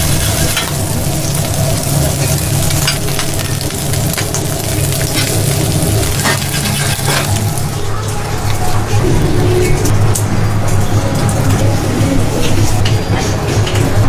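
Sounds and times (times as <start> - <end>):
burger patties sizzling on griddle: 0.0 - 7.7
low hum: 0.0 - 14.0
metal spatula scraping griddle: 5.2 - 7.5.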